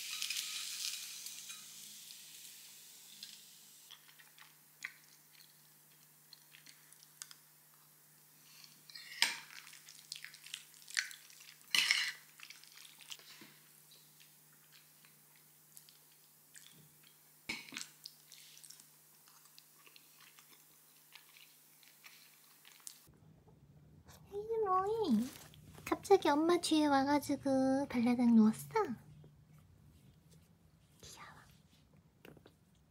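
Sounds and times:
quiet chewing: 3.9 - 8.8, 12.4 - 23.1.

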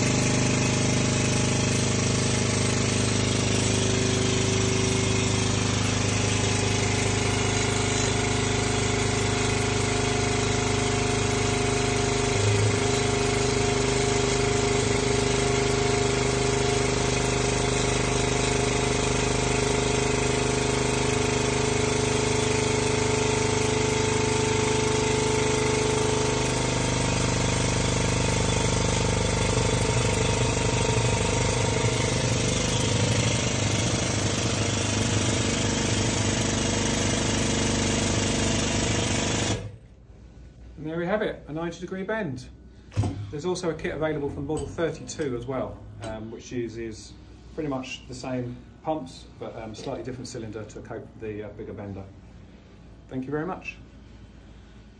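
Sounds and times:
hydraulic pump with pneumatic chatter: 0.0 - 40.0, 42.7 - 43.7.

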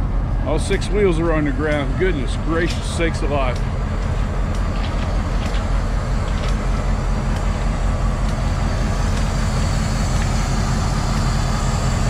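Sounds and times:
diesel locomotive idling: 0.0 - 12.0
footsteps on gravel ballast: 2.7 - 6.8.

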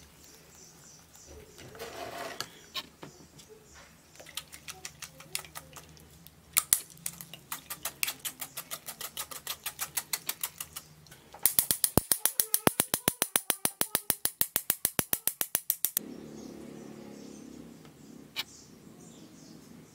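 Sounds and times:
spoon scraping metal strainer: 1.7 - 2.6, 7.0 - 10.9.

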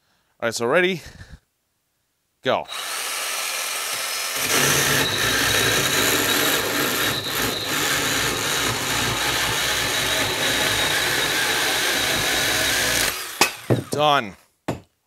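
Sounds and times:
cordless chainsaw cutting wood: 2.7 - 14.2.

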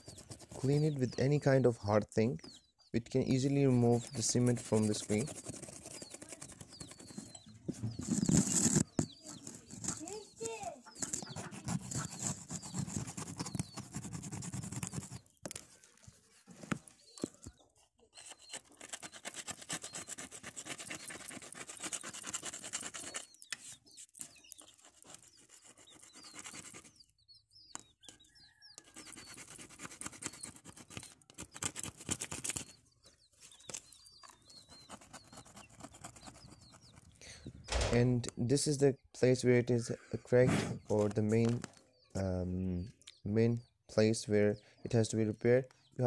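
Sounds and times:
scraping tool scratching glass: 3.8 - 15.3, 18.1 - 26.8, 28.1 - 31.6.

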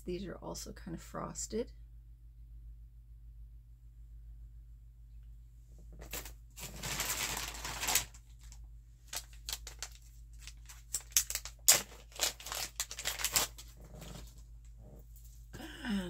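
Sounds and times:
plastic packaging rustling: 5.9 - 14.5
bead packets clicking: 6.1 - 13.7.

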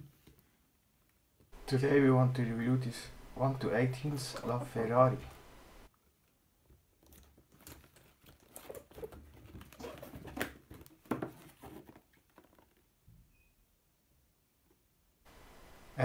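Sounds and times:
cardboard and plastic rustling: 7.1 - 12.9.

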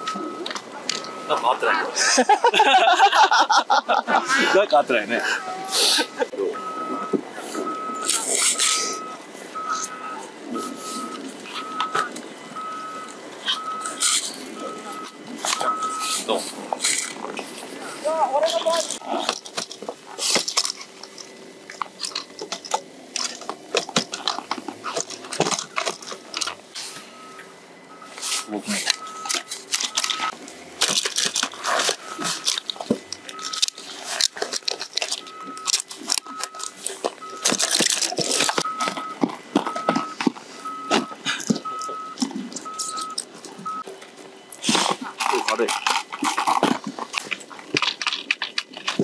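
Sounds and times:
reversing alarm beeping: 0.0 - 2.2, 5.2 - 19.3, 23.2 - 44.6
bindings clicking and crunching: 18.3 - 26.7, 28.8 - 49.0.

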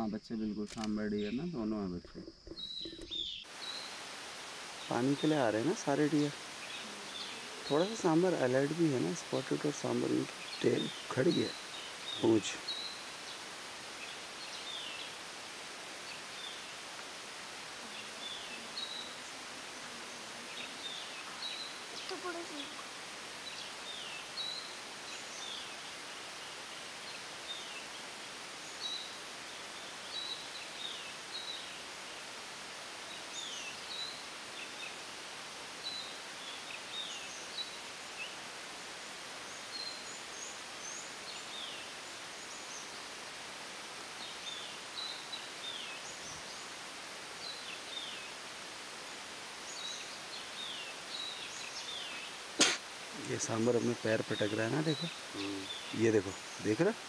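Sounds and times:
steady background hiss: 0.0 - 57.0
birds calling high notes: 4.8 - 13.2.

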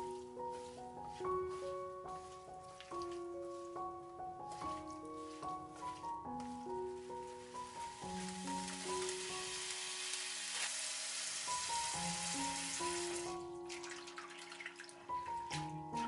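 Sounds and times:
gentle background music: 0.0 - 16.0.

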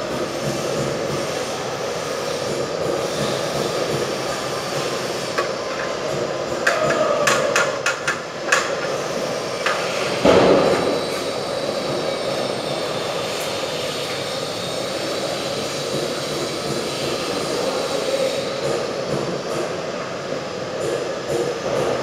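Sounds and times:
steady rushing background noise: 0.0 - 10.8.

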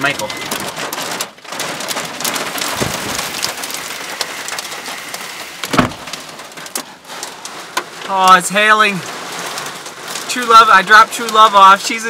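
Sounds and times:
hail and heavy rain pelting: 0.0 - 12.0
loud thump: 2.7 - 3.5, 5.7 - 6.1.

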